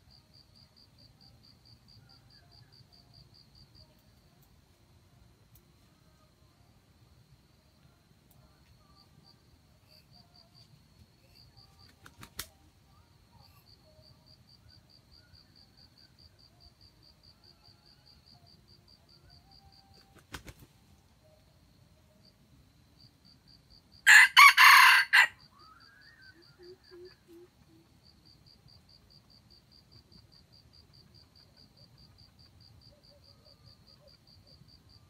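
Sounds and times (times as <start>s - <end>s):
insects chirping: 0.0s - 35.0s
rooster crowing: 24.0s - 25.5s.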